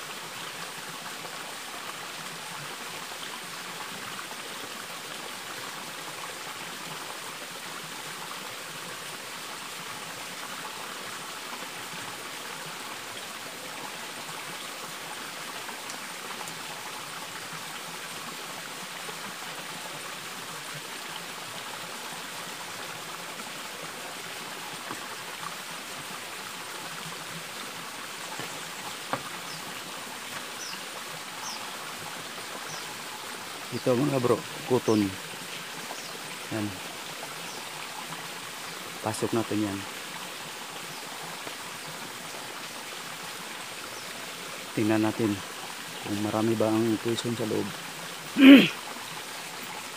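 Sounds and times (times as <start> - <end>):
water rushing: 0.0 - 49.9.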